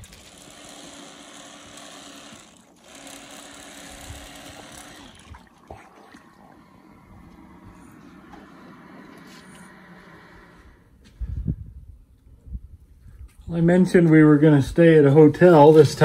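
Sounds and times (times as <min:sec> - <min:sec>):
boat motor humming: 0:00.0 - 0:11.0
wash of noise: 0:05.1 - 0:10.9.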